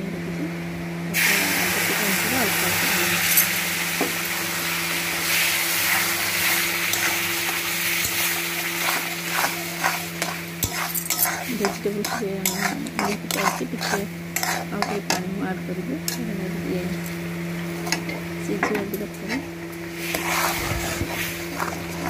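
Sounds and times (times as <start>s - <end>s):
steady low hum: 0.0s - 22.0s
water sizzling in a pan: 1.2s - 11.6s
metal spatula scraping a pan: 5.8s - 15.2s, 20.0s - 22.0s.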